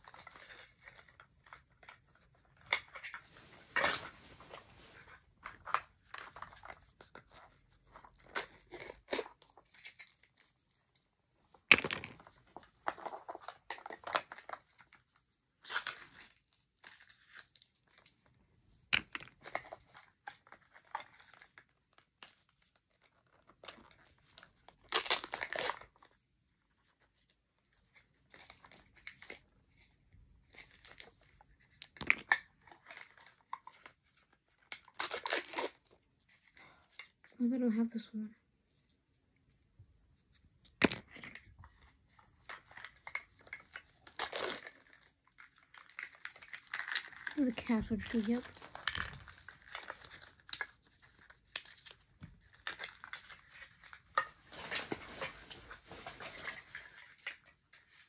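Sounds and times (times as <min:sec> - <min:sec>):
plastic packaging crinkling: 0:20.9 - 0:25.9, 0:34.7 - 0:36.0, 0:42.5 - 0:57.5
plastic packaging tearing: 0:24.8 - 0:25.9, 0:34.7 - 0:36.0, 0:44.0 - 0:52.0.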